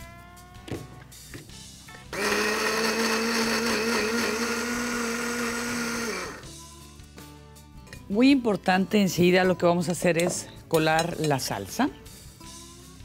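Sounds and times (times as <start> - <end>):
blender running: 2.1 - 6.5.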